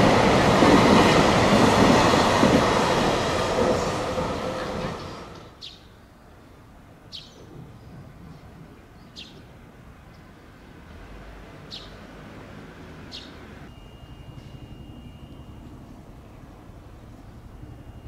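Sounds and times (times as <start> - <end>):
bird chirping: 5.0 - 6.0, 7.1 - 8.0, 9.0 - 9.4, 11.7 - 12.0, 13.1 - 18.0.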